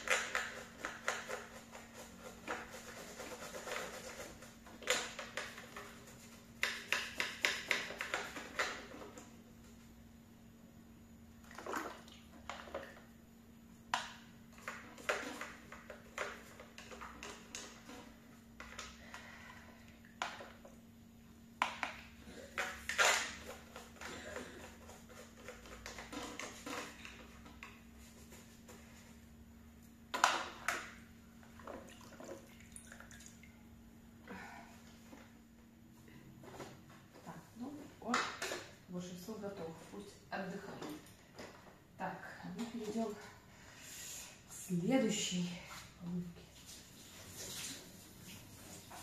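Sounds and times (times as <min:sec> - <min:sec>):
cleaning tool scraping plastic: 0:00.0 - 0:09.2, 0:14.6 - 0:18.9, 0:22.5 - 0:28.8.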